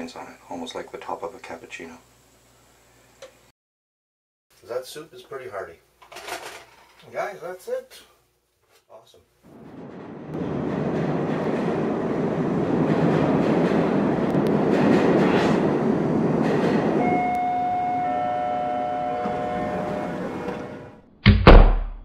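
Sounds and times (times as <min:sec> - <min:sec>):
loud sudden thump: 0:21.2 - 0:22.0.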